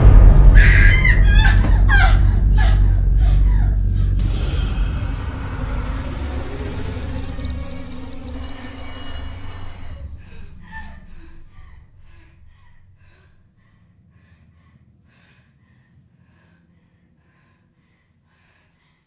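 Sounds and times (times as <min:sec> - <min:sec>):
low horror music rumble: 0:00.0 - 0:19.0
woman panting: 0:00.9 - 0:04.3, 0:10.2 - 0:19.0.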